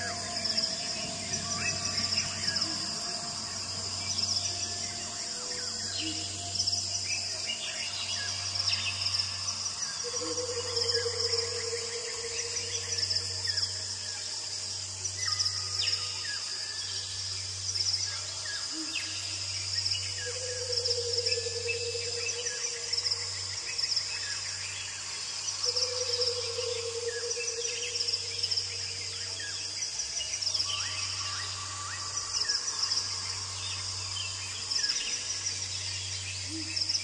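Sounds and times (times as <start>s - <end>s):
insects chorus: 0.0s - 37.0s.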